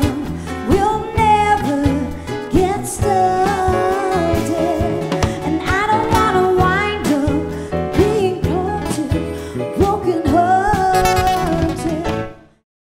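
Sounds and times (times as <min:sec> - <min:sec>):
live band playing: 0:00.0 - 0:12.5
woman singing into a microphone: 0:00.0 - 0:12.5.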